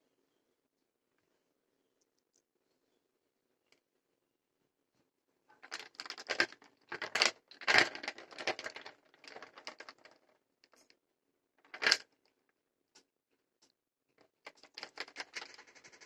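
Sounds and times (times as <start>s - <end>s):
walnuts rattling in plastic colander: 5.6s - 10.2s, 11.7s - 12.0s, 14.5s - 16.0s.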